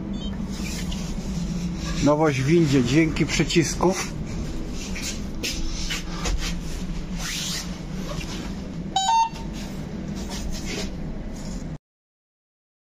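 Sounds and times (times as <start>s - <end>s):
steady low hum: 0.0s - 11.8s
two-note button beep: 9.0s - 9.5s.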